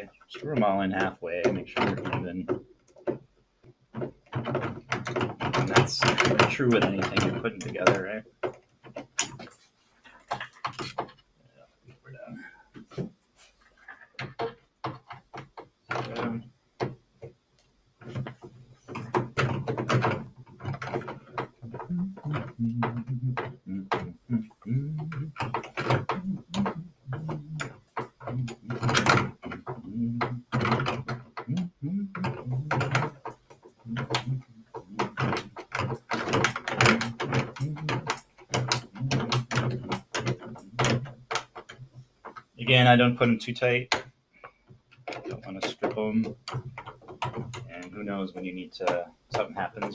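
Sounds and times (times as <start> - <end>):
man talking: 0.0 - 2.6, 5.6 - 8.3, 12.1 - 12.6, 16.0 - 16.5, 21.7 - 25.3, 26.1 - 27.7, 28.3 - 30.5, 31.5 - 33.1, 33.9 - 35.4, 38.9 - 39.8, 42.6 - 44.0, 45.2 - 46.4, 47.7 - 49.9.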